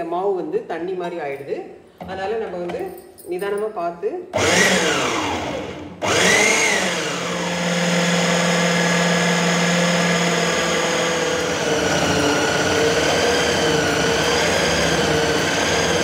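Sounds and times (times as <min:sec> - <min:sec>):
mixer grinder motor running: 0:04.4 - 0:16.0.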